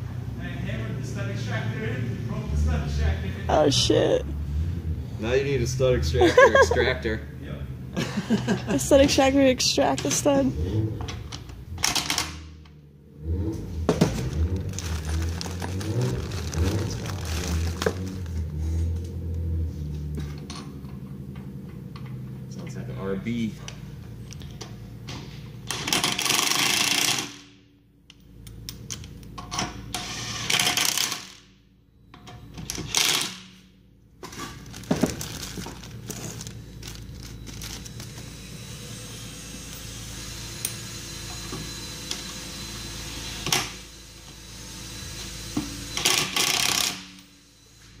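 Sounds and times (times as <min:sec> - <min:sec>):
electric drill boring into bolt: 0:25.7 - 0:27.4, 0:29.9 - 0:31.4, 0:32.9 - 0:33.4, 0:37.8 - 0:47.2.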